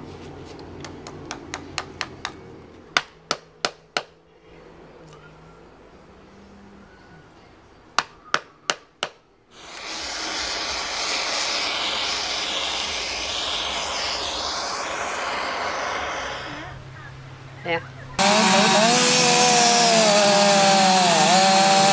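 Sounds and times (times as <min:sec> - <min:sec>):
hiss of torch flame: 0:09.5 - 0:16.8.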